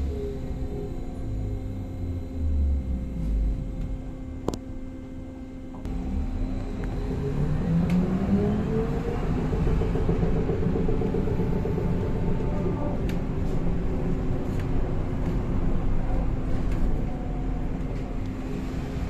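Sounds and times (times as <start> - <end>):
electrical hum: 0.0 - 19.0
low road rumble: 5.7 - 19.0.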